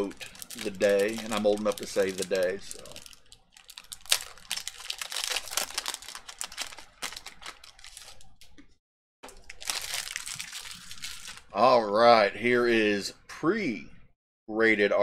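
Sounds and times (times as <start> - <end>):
wrapper tearing and crinkling: 0.0 - 8.5, 9.3 - 11.5.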